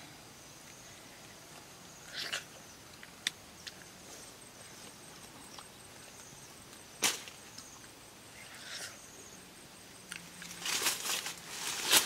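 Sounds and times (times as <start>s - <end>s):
slurp: 2.1s - 2.5s.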